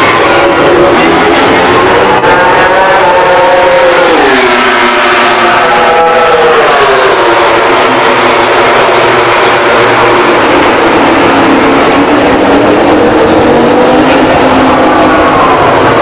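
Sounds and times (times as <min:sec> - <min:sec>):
racing motorcycle engine: 0:00.0 - 0:16.0.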